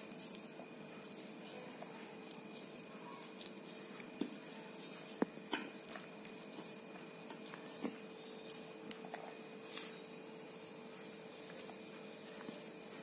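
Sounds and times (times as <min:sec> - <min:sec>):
hands squishing sticky mixture: 0:00.0 - 0:13.0.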